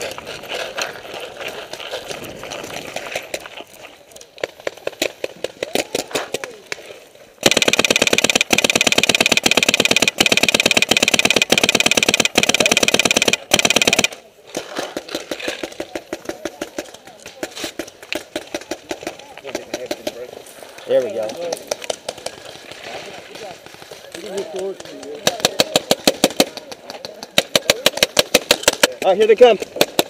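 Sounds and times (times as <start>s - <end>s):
paintball marker rapid fire: 7.4s - 20.3s, 21.0s - 30.0s
scattered pops: 7.4s - 30.0s.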